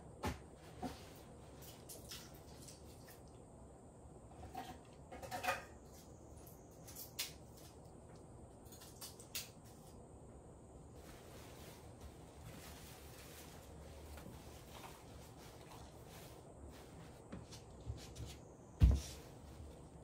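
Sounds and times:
dishes and utensils clattering: 4.4s - 6.0s.

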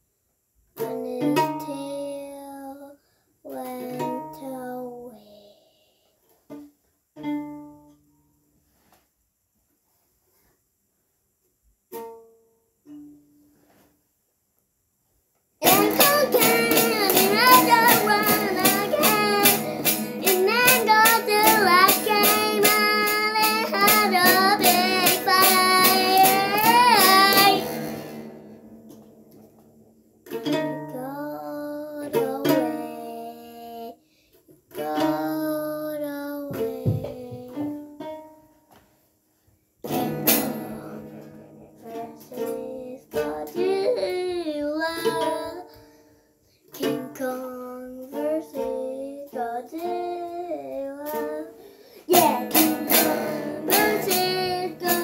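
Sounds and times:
strummed string instrument: 0.8s - 2.6s, 3.5s - 5.0s, 6.3s - 8.4s, 11.9s - 13.8s, 15.6s - 33.9s, 34.7s - 38.7s, 39.8s - 55.0s
person singing: 0.8s - 6.0s, 15.6s - 28.1s, 30.6s - 34.0s, 34.7s - 37.9s, 40.4s - 45.8s, 46.8s - 55.0s.

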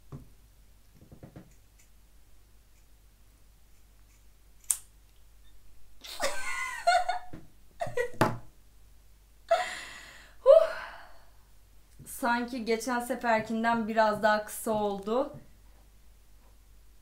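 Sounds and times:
scissors snipping hair: 1.4s - 2.0s, 3.7s - 4.9s
woman laughing and gasping: 6.0s - 8.1s, 9.5s - 11.2s.

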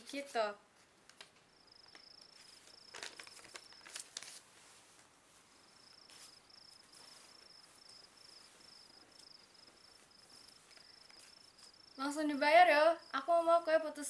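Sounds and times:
faint cricket chirping: 0.1s - 14.0s
soft rustles: 0.8s - 11.9s.

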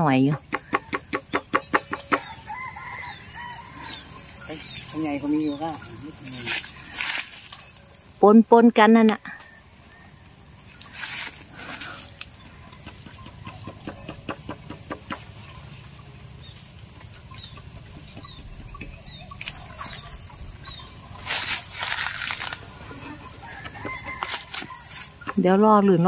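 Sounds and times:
high insect drone: 0.0s - 26.0s
leaves rustling and twigs crackling: 2.8s - 8.2s, 10.6s - 12.4s, 19.3s - 25.3s
bird chirps: 11.8s - 21.3s.

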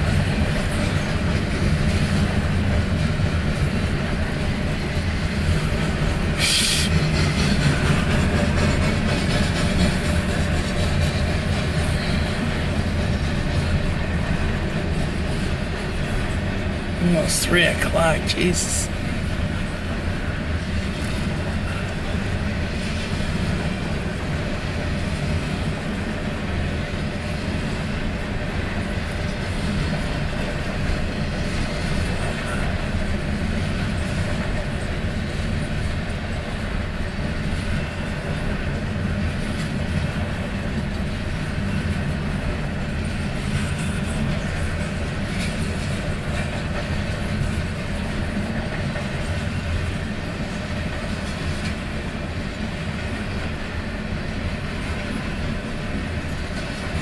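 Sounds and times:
freight train rumbling past: 0.0s - 57.0s.

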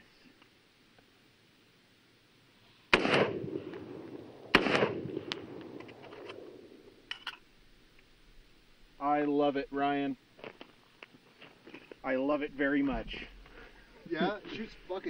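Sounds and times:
rifle shots with rolling echo: 2.9s - 7.1s.

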